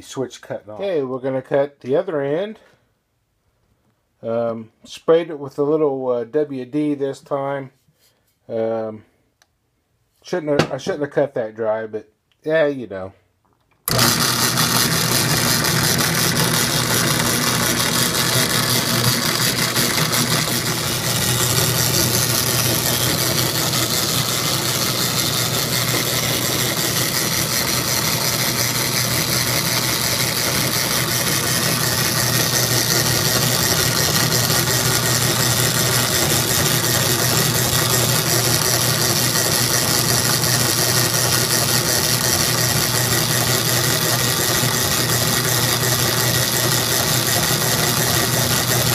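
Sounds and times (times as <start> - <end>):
power hacksaw cutting metal: 13.9 - 48.9.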